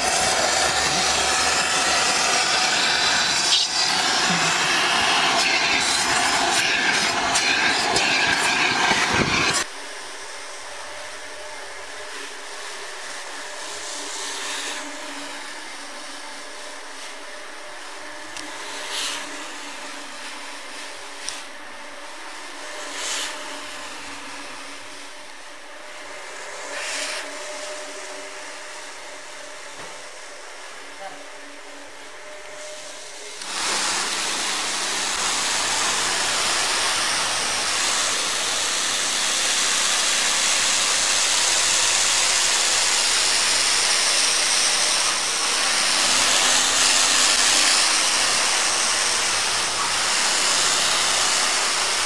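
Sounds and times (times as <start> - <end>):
pressure washer jet hissing: 0.0 - 9.7, 32.8 - 52.0
floor scrubber motor hum: 0.0 - 52.0.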